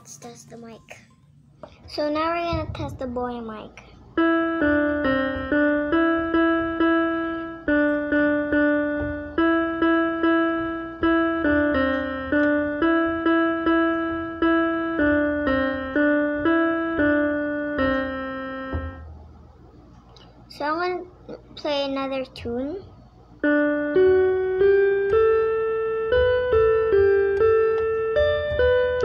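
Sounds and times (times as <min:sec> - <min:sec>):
electronic keyboard melody: 0:04.1 - 0:19.3, 0:23.4 - 0:29.0.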